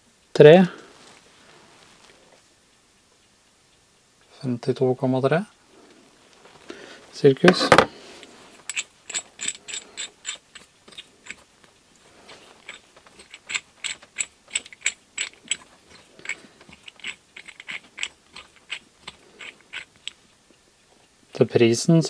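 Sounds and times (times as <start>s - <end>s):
bolt screwing metallic clicks: 8.6s - 11.4s, 12.3s - 20.2s.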